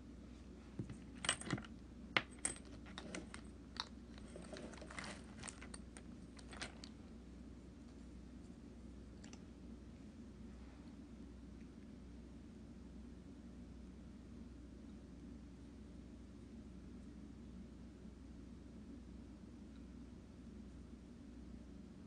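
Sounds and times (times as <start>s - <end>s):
small hard items clicking: 1.4s - 7.0s.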